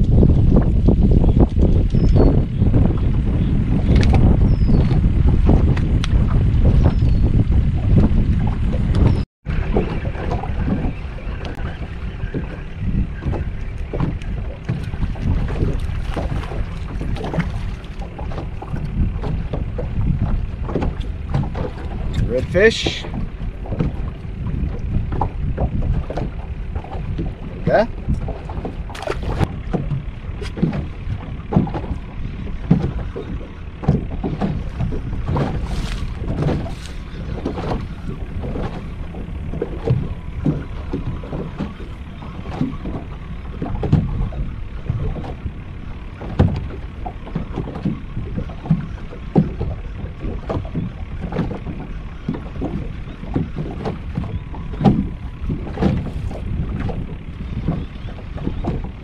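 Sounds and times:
waves slapping against boat hull: 0:00.0 - 0:59.0
wind rumble on microphone: 0:00.0 - 0:59.0.

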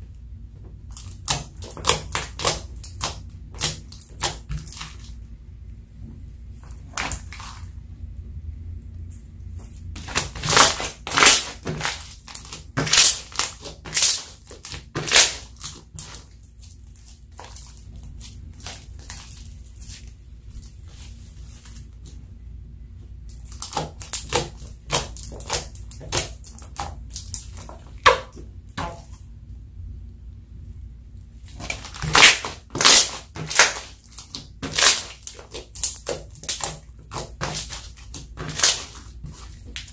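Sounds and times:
faint low rumble: 0:04.9 - 0:10.4, 0:16.2 - 0:23.6, 0:27.0 - 0:31.7
slime squeezed by hand: 0:09.6 - 0:21.9, 0:31.4 - 0:39.9
slime air pockets popping: 0:10.0 - 0:16.2, 0:31.5 - 0:39.9.

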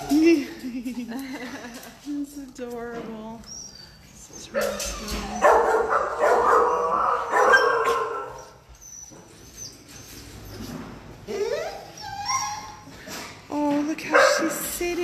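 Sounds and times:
dog whining: 0:03.4 - 0:13.1
dogs barking: 0:04.5 - 0:08.6.

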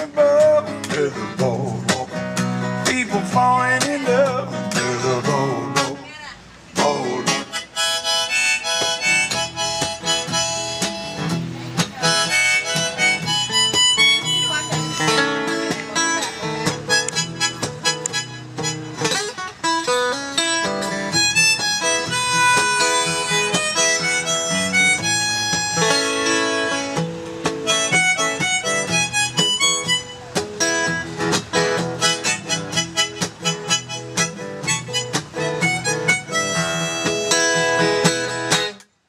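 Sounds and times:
strummed acoustic guitar: 0:00.0 - 0:38.9
harmonica solo: 0:07.3 - 0:27.0, 0:27.6 - 0:38.7.

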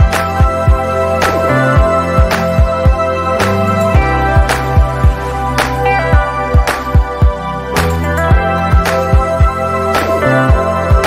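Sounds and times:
held chords: 0:00.0 - 0:11.0
kick drum beat: 0:01.8 - 0:03.0.

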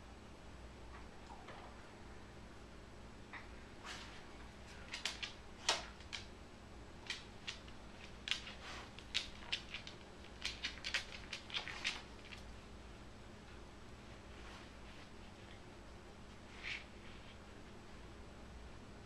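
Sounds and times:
dog claws clicking on wood floor: 0:04.7 - 0:06.3, 0:07.0 - 0:12.5.

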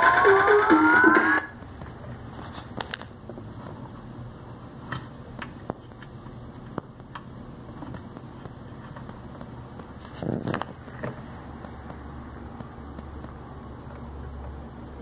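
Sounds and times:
music with rising sweep tones: 0:00.0 - 0:01.6
low steady hum: 0:00.0 - 0:15.0.

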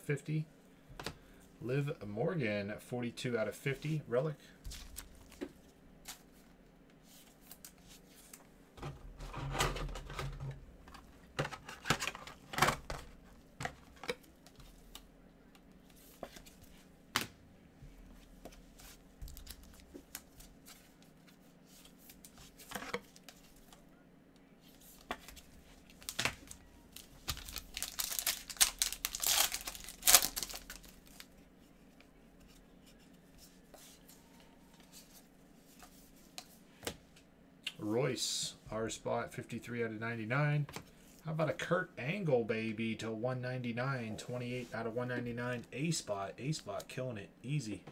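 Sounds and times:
foil rustling and crinkling: 0:25.8 - 0:31.3.

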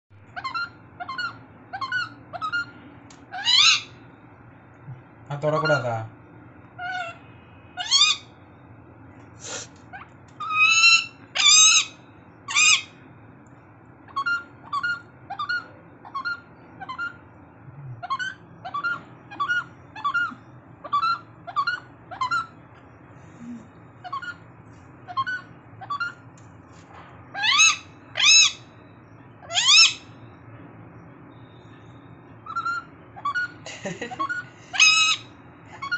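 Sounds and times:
parakeet squawking: 0:00.3 - 0:02.7, 0:03.3 - 0:04.0, 0:05.3 - 0:06.0, 0:06.8 - 0:08.4, 0:09.5 - 0:13.0, 0:14.0 - 0:17.2, 0:18.0 - 0:22.6, 0:24.0 - 0:24.4, 0:25.0 - 0:26.2, 0:27.3 - 0:28.7, 0:29.4 - 0:30.1, 0:32.4 - 0:35.9
parakeet screeching: 0:00.3 - 0:04.0, 0:05.3 - 0:06.0, 0:06.8 - 0:08.4, 0:09.9 - 0:13.0, 0:14.0 - 0:17.2, 0:18.0 - 0:22.6, 0:24.0 - 0:24.4, 0:25.0 - 0:26.2, 0:27.3 - 0:28.8, 0:29.4 - 0:30.2, 0:32.4 - 0:33.6, 0:34.2 - 0:35.9.

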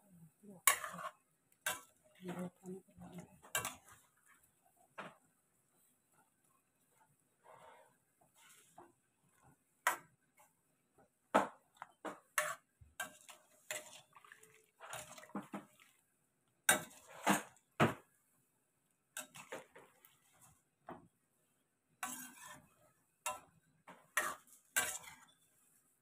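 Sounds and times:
metal spatula scraping frying pan: 0:00.6 - 0:02.1, 0:03.4 - 0:04.0, 0:12.3 - 0:15.8, 0:16.7 - 0:17.6, 0:19.2 - 0:20.6, 0:22.0 - 0:25.6.

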